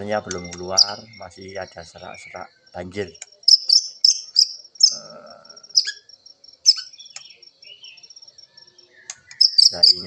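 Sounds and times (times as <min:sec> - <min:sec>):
bird singing hoarse phrases: 0:00.0 - 0:10.0.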